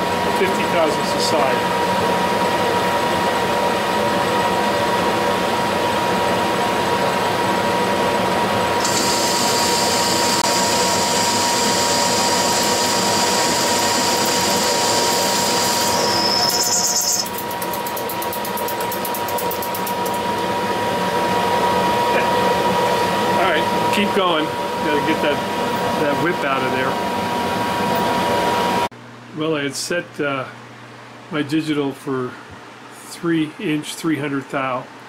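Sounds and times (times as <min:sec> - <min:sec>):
high-pitched cutting hiss: 0:08.8 - 0:17.5
metal lathe whining: 0:08.8 - 0:20.2.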